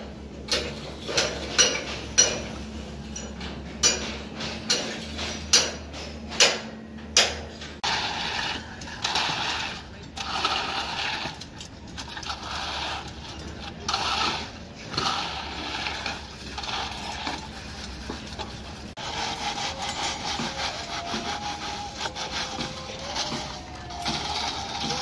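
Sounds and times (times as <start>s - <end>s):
screed scraping wet concrete: 7.8s - 25.0s.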